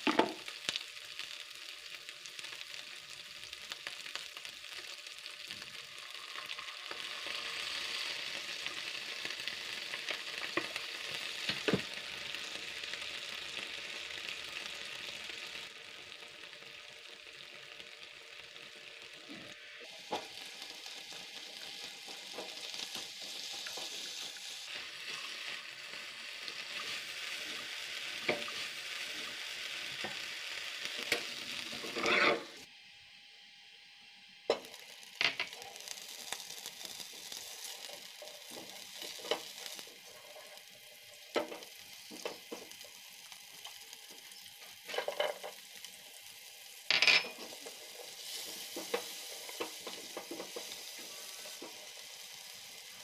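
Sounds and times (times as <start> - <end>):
vegetables sizzling in a frying pan: 0.0 - 32.7, 34.4 - 53.0
spatula scraping a pan: 31.7 - 32.6.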